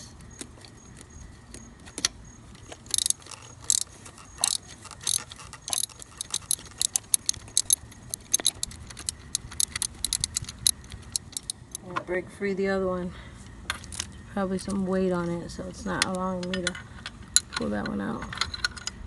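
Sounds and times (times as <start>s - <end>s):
ratchet wrench clicking: 2.7s - 11.8s.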